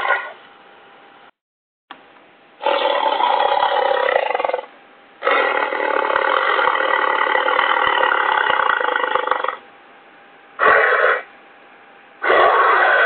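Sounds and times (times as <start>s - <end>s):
dinosaur call: 2.6s - 9.6s, 10.6s - 11.3s, 12.2s - 13.0s.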